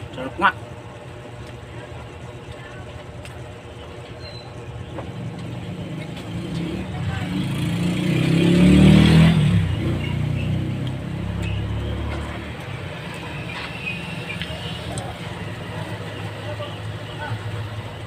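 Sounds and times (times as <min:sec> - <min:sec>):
vehicle engine passing by: 0:05.6 - 0:16.6.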